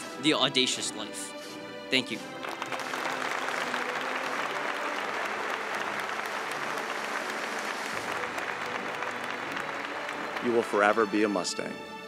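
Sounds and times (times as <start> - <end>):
audience applauding: 2.2 - 11.4.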